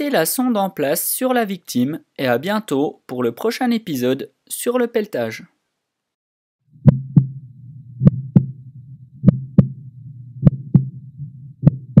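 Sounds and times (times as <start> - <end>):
heartbeat: 6.7 - 12.0
low steady hum: 6.7 - 12.0.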